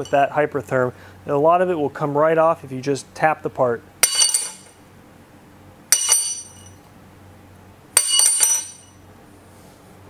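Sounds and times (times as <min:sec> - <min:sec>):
steel bracket clinking on hard surface: 0:04.0 - 0:04.8, 0:05.9 - 0:06.8, 0:08.0 - 0:09.0.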